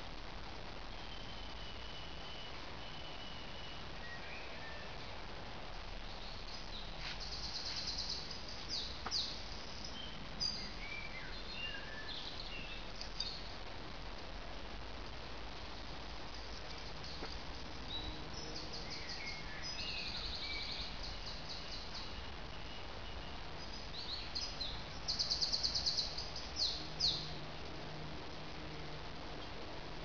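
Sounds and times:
songbirds trilling: 6.1s - 13.5s, 16.5s - 27.5s.

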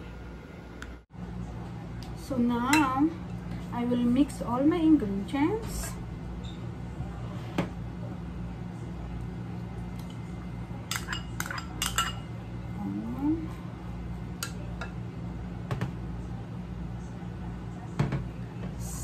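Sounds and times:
spoon clinking on bowl: 10.9s - 12.3s.

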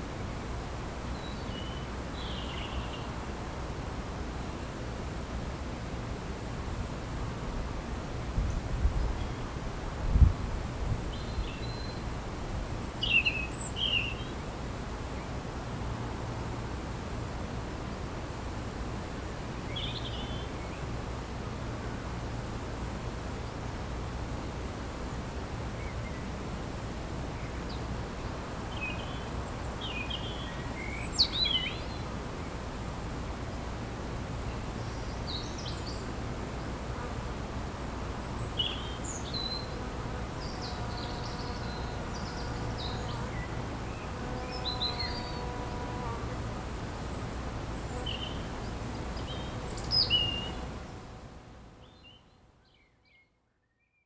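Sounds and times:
songbirds chirping: 0.4s - 3.3s, 11.1s - 12.2s, 12.8s - 15.4s, 16.3s - 21.2s, 25.6s - 26.4s, 27.2s - 36.9s, 38.0s - 46.4s, 47.0s - 54.0s
bee buzzing: 36.2s - 52.3s.

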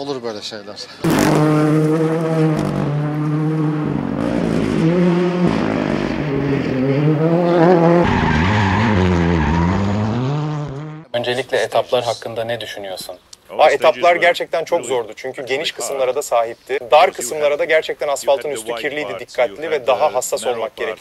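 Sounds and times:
rally car engine revving: 1.0s - 11.1s.

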